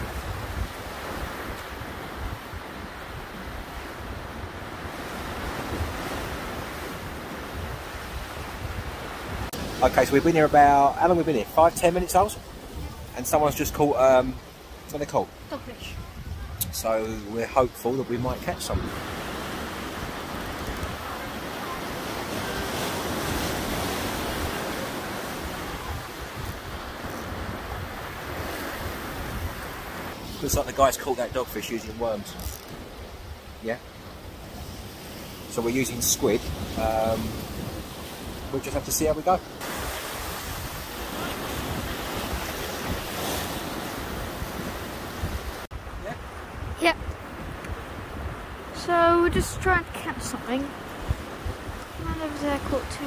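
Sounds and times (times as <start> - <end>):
wind buffeting microphone: 0.0 - 10.5, 15.6 - 17.3, 18.2 - 30.9, 39.6 - 53.0
sea waves breaking against pier: 0.0 - 53.0.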